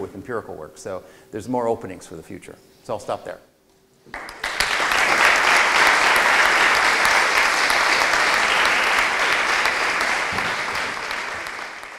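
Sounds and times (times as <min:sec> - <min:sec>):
audience applauding: 0:04.1 - 0:11.9.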